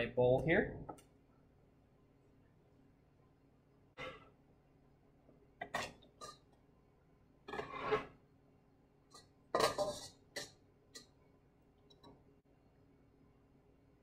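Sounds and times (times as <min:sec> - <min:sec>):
knife scraping cutting board: 0:07.5 - 0:08.2, 0:09.2 - 0:10.5.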